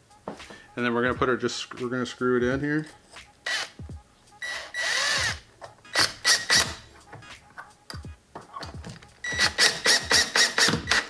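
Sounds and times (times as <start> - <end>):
drill driving screw: 3.4 - 3.8, 4.4 - 6.8, 9.2 - 11.0.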